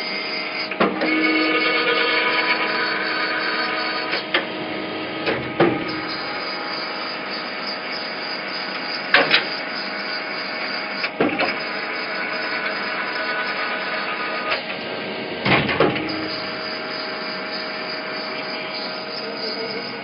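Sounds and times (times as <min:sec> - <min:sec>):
tapping machine whirring: 0:05.2 - 0:14.8, 0:15.4 - 0:20.0.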